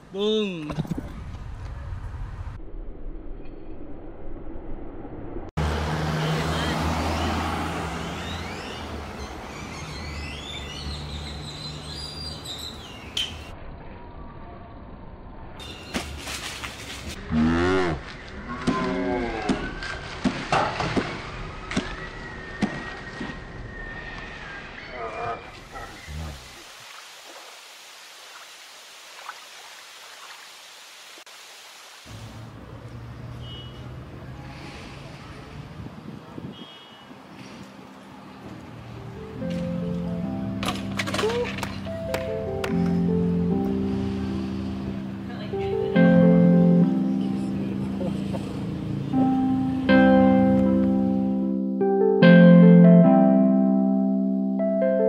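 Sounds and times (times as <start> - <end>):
vehicle humming: 5.2 - 18.8, 37.7 - 51.4
birds chirping: 6.4 - 13.5, 15.6 - 16.2, 21.0 - 27.0
static hiss with crackles: 26.2 - 32.5.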